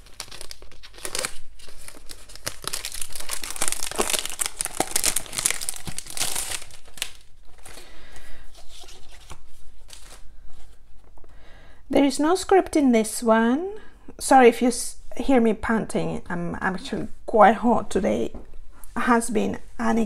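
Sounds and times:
plastic packaging crinkling: 0.0 - 7.9.

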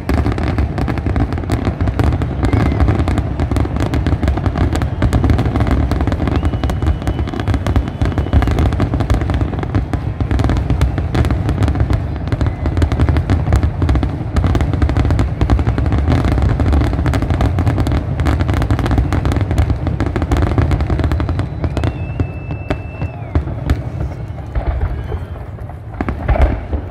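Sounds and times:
fireworks bursting and crackling: 0.0 - 26.9
thin high firework whistle: 2.0 - 10.0, 11.7 - 13.2, 20.3 - 26.7.

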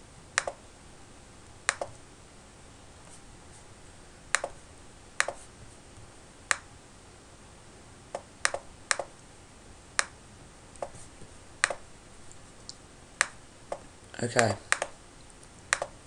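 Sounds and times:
faint steady hiss: 0.0 - 16.0
computer mouse button clicking: 0.4 - 0.6, 1.7 - 2.0, 4.3 - 4.6, 8.2 - 9.1, 15.7 - 15.9.

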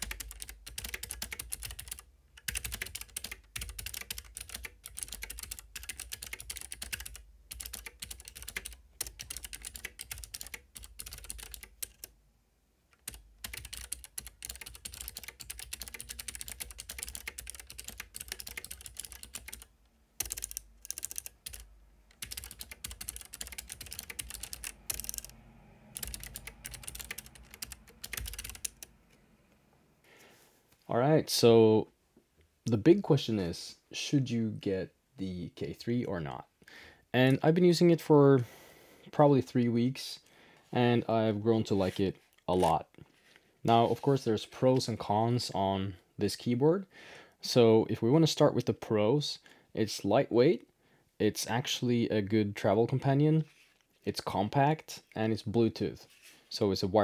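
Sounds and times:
fast typing on clicky keyboard: 0.0 - 12.1, 13.0 - 28.9.

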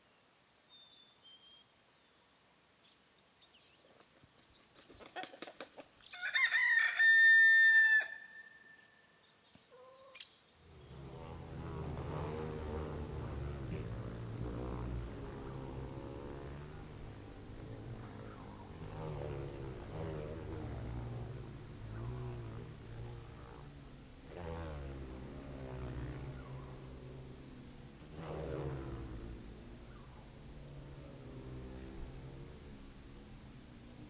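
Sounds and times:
rooster crowing: 6.0 - 9.1
honeybees humming: 6.2 - 33.3.

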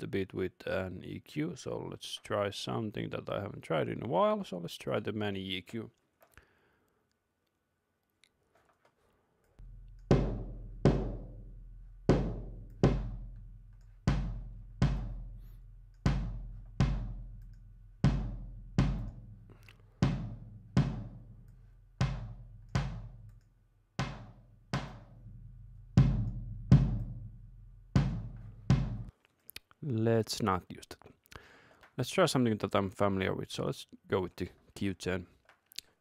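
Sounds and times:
kick drum booming: 9.6 - 13.4, 14.0 - 15.4, 16.0 - 17.4, 18.0 - 21.4, 22.0 - 23.3, 24.0 - 27.4, 28.0 - 29.1.

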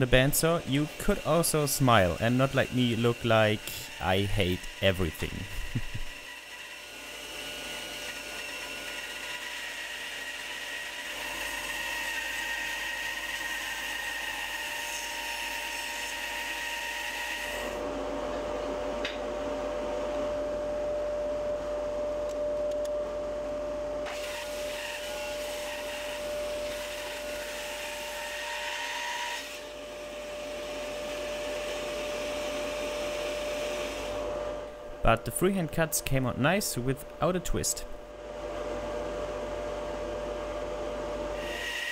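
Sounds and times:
machine running hum: 0.0 - 11.2, 17.6 - 27.0, 37.8 - 41.4
bandsaw cutting wood: 0.0 - 17.8, 24.1 - 34.2, 41.4 - 41.9
high whine: 17.8 - 24.1.

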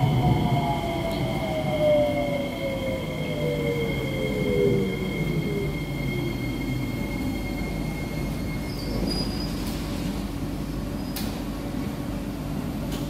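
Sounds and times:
train low rumble: 0.0 - 13.0
high brake squealing: 5.8 - 10.1.

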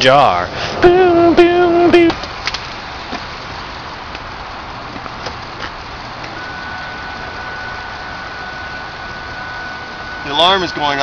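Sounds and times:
steady rumbling: 0.0 - 11.0
car alarm high warning tone: 6.2 - 11.0.

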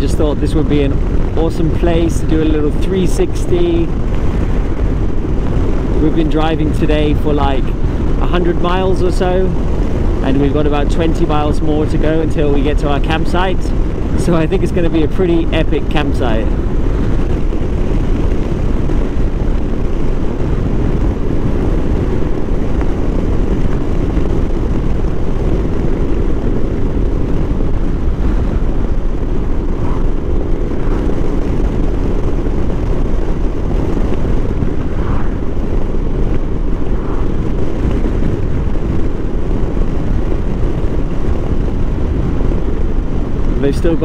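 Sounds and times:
motorcycle engine drone: 0.0 - 44.0
wind rush: 0.0 - 44.0.

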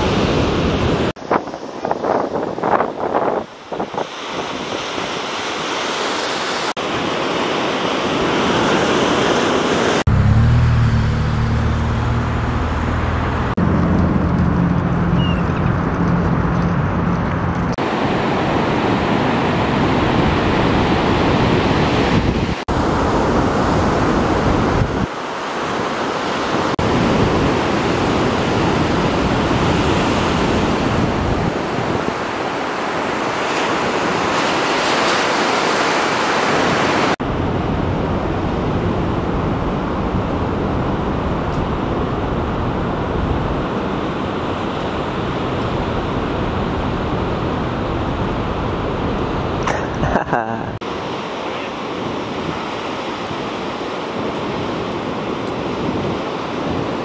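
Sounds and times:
wind on microphone: 0.0 - 10.2, 10.8 - 50.1, 50.7 - 57.0
ocean waves breaking: 0.0 - 57.0
low steady drone: 10.1 - 17.6.

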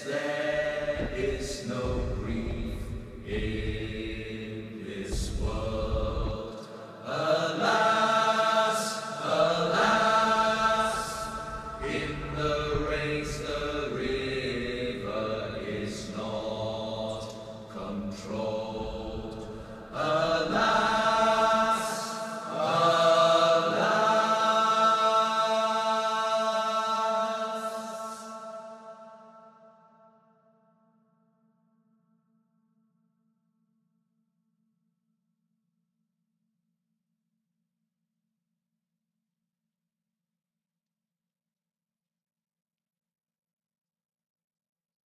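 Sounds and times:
person singing slow chant-like song: 0.0 - 29.7.

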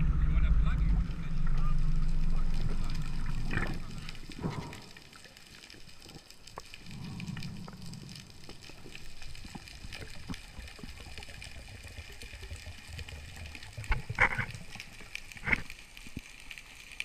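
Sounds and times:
low rumble: 0.0 - 5.4
gurgling splashes: 0.0 - 15.7
water gurgling and trickling: 0.0 - 17.0
small scattered clicks: 1.1 - 17.0.

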